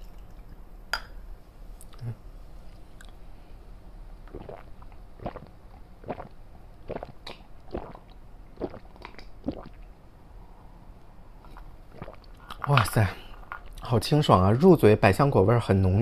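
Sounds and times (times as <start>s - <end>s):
person gulping drink: 4.2s - 9.9s, 11.4s - 12.9s.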